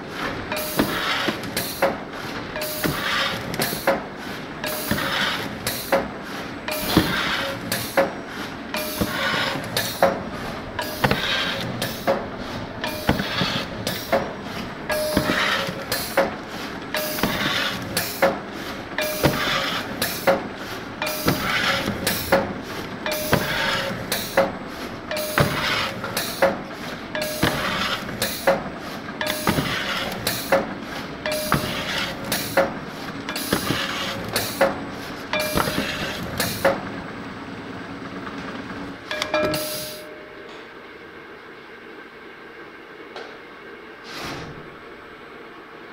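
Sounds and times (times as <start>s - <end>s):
machine clicks and knocks: 0.5s - 36.9s, 38.2s - 40.6s.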